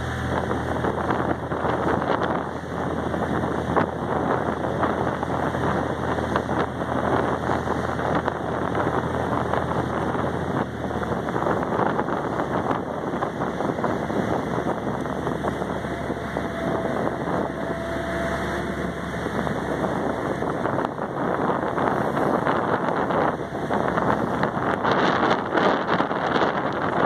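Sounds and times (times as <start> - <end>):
ferry engine drone: 0.0 - 27.0
wake churning along hull: 0.0 - 27.0
wind buffeting microphone: 0.0 - 27.0.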